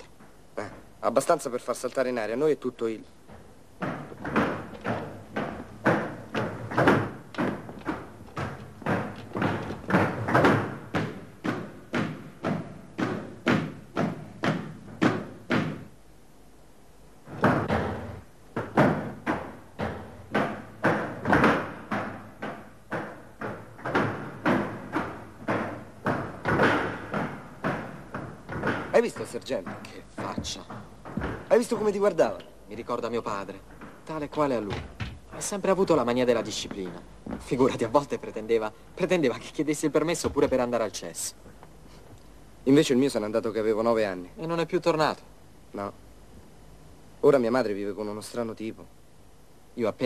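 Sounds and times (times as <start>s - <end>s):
boot footsteps on hard floor: 3.2s - 15.9s, 17.3s - 32.1s, 33.7s - 38.0s, 40.1s - 40.8s.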